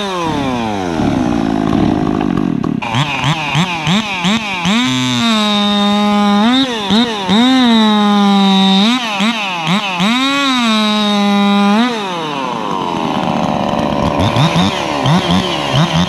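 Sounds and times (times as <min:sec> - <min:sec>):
chainsaw engine revving: 0:00.0 - 0:16.0.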